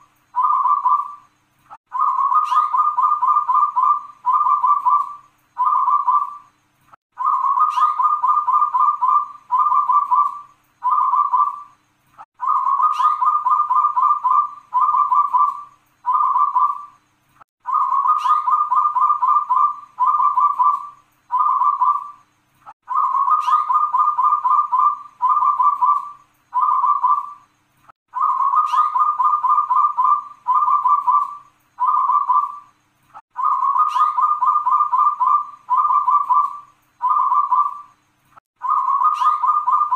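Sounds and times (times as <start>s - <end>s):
dove cooing: 0.0s - 1.3s, 1.9s - 6.5s, 7.2s - 11.7s, 12.4s - 16.9s, 17.6s - 22.2s, 22.8s - 27.4s, 28.1s - 32.7s, 33.3s - 38.0s, 38.6s - 39.9s.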